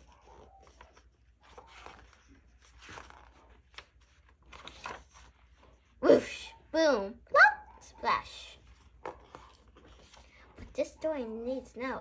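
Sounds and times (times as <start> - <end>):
hand rustling book pages: 0.0 - 6.0, 8.6 - 11.0.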